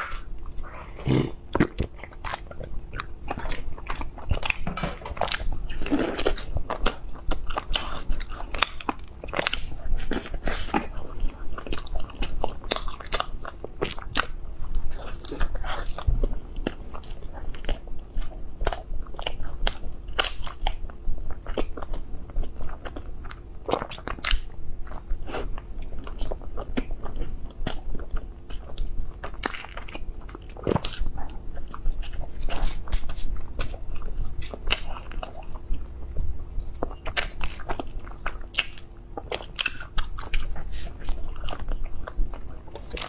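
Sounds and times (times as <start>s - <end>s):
biting and chewing soft bread: 0.0s - 43.0s.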